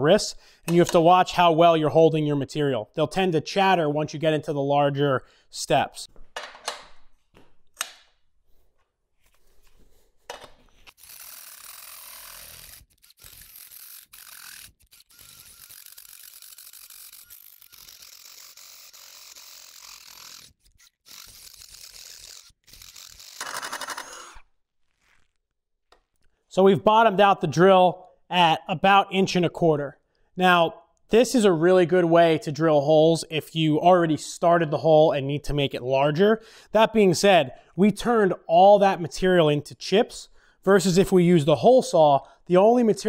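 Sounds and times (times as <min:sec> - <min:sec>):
cordless drill cutting through steel: 0:10.9 - 0:25.4.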